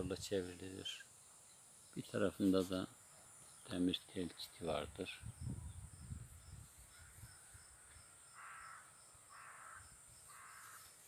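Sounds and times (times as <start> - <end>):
insects droning: 0.0 - 11.0
low wind rumble on microphone: 4.8 - 8.0
faint crow cawing: 6.9 - 11.0.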